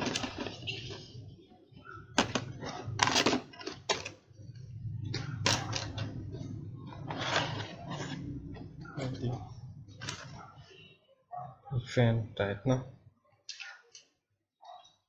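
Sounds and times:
cardboard rustling and scraping: 0.0 - 1.1, 7.0 - 8.6.

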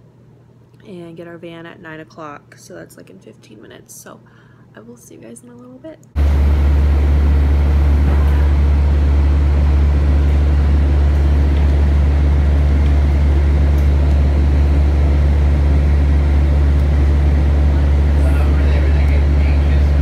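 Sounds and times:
vehicle engine drone: 6.2 - 20.0.

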